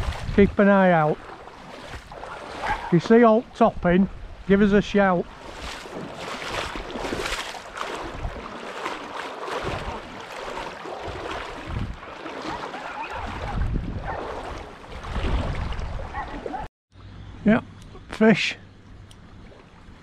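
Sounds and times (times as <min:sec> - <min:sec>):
wind buffeting microphone: 0:00.0 - 0:01.3, 0:03.6 - 0:08.6, 0:11.0 - 0:16.6
waves lapping on stony shore: 0:00.0 - 0:03.0, 0:05.2 - 0:16.6.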